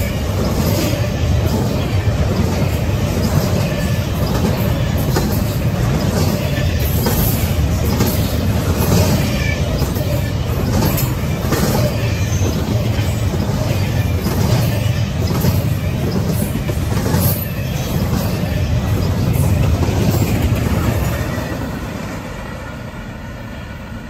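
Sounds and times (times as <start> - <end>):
freight train wheels rumbling: 0.0 - 24.0
rail clacks: 0.0 - 24.0.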